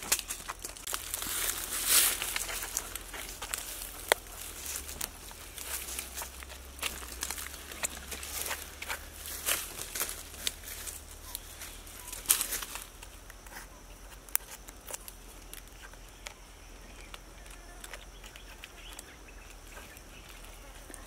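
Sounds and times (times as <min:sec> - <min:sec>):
rotten wood crackling and snapping: 0:00.0 - 0:21.0.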